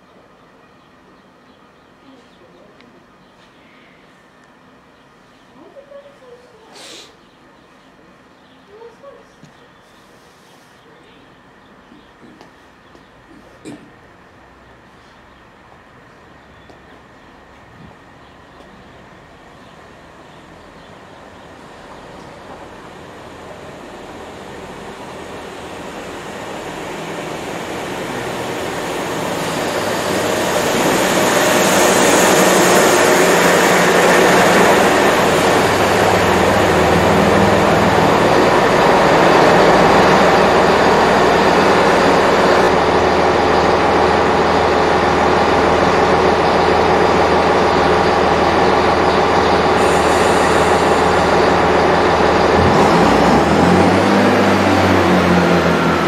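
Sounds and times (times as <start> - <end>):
diesel train arriving and idling: 9.7 - 56.0
high brake squeal: 49.8 - 51.5.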